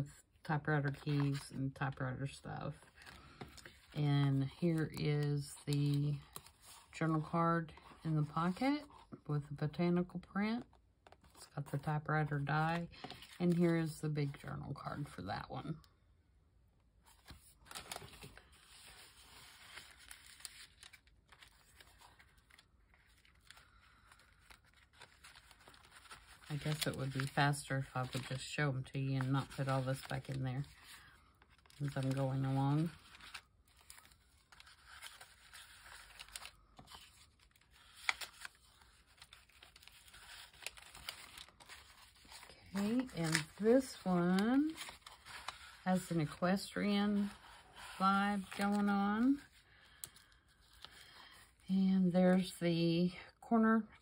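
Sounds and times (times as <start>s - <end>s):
paper rustling and sliding: 17.0s - 28.4s, 29.1s - 49.5s.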